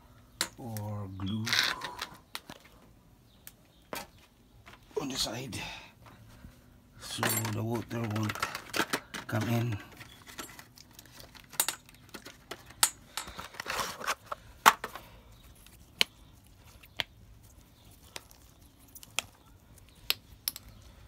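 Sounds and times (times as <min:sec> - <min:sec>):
clicks and knocks of tools: 0:07.1 - 0:15.0.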